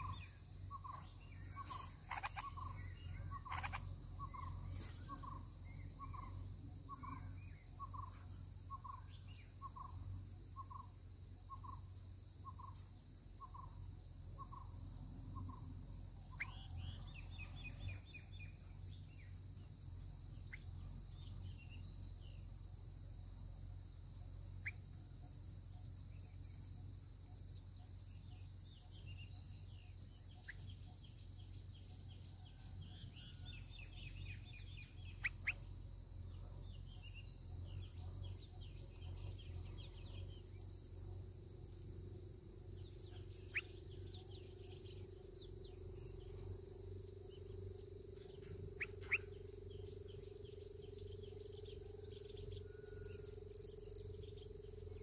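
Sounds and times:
nestlings begging chirps: 0.0 - 9.9, 48.1 - 55.0
high insect drone: 0.0 - 55.0.

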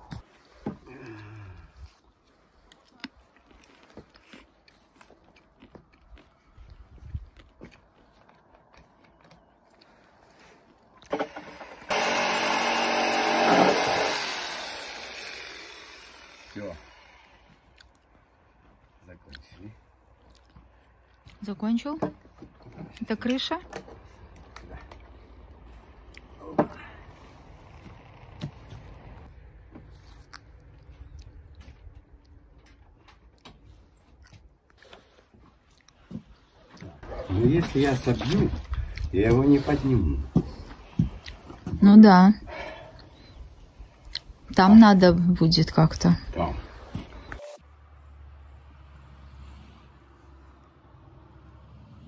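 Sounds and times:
electric drill driving a screw: 11.1 - 17.6.

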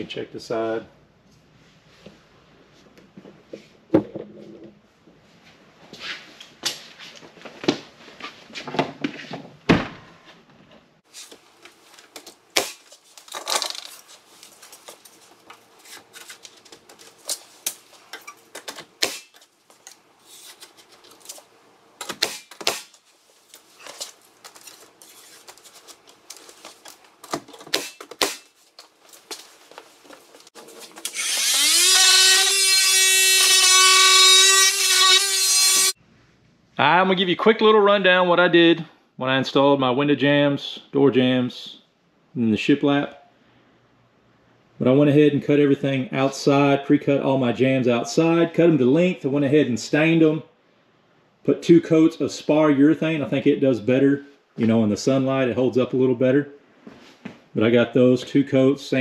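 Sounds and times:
small power tool motor running: 31.0 - 35.9.

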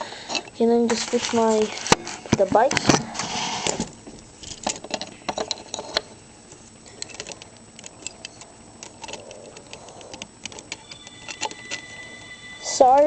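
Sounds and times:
phone ringing: 10.7 - 13.0.

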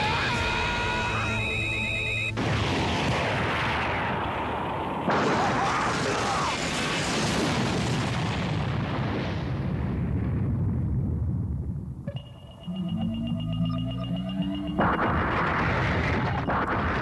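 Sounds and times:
energy blast explosion: 2.4 - 11.2, 14.6 - 17.0.

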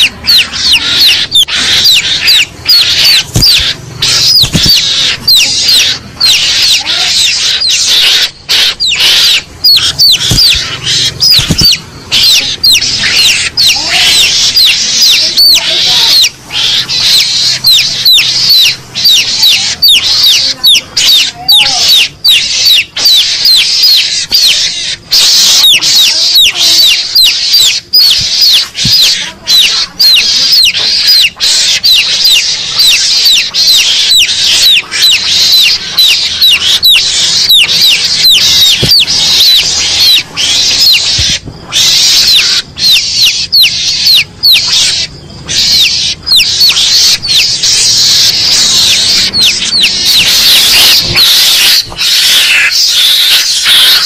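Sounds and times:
shrill squeaking lure call: 0.0 - 54.0.

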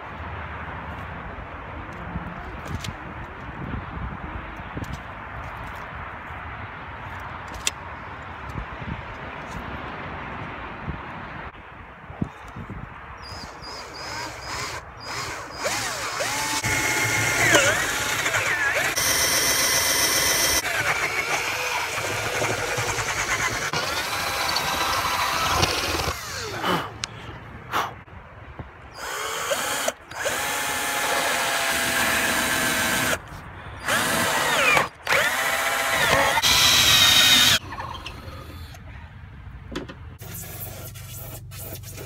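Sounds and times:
cordless drill boring fiberglass: 13.9 - 26.5, 29.0 - 33.2, 33.8 - 37.6.

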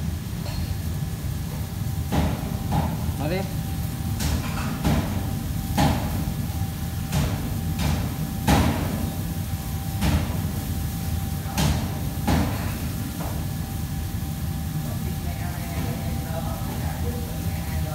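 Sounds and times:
steady low hum: 0.0 - 17.9
kitchen knocks and clanks: 4.2 - 5.2, 11.5 - 13.5.

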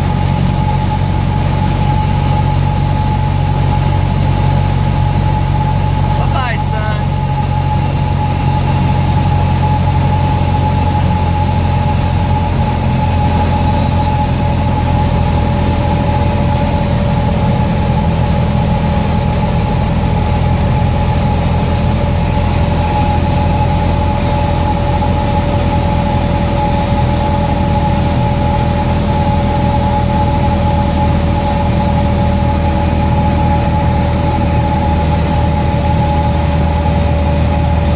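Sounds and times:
high whine: 0.0 - 37.9
propeller aircraft engine droning: 0.0 - 37.9.

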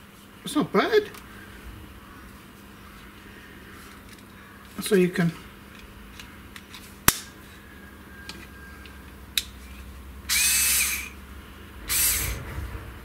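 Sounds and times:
cordless screwdriver motor whine: 10.3 - 11.2, 11.9 - 12.4.

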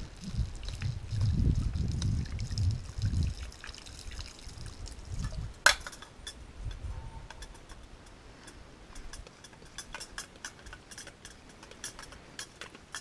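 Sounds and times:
water trickling into a pot: 0.0 - 6.0
hand pump water filter pumping: 0.0 - 6.4, 7.3 - 13.0.

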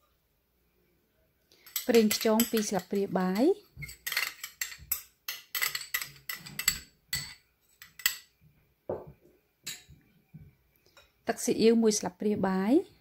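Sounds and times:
spoon clinking on glass dish: 1.6 - 3.1, 3.8 - 8.3, 9.7 - 9.9.

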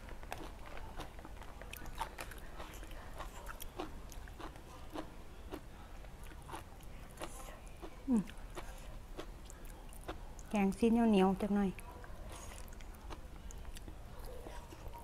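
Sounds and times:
person chewing with mouth clicks: 0.2 - 10.5.

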